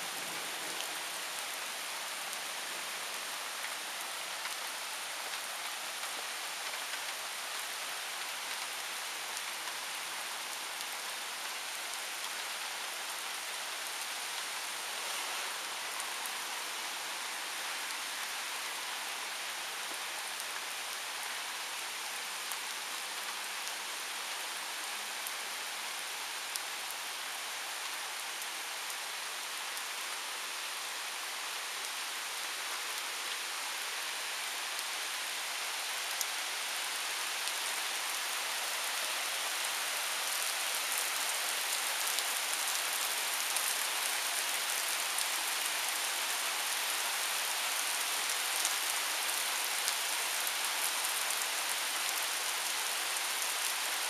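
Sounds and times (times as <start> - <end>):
heavy rain pouring: 0.0 - 29.7.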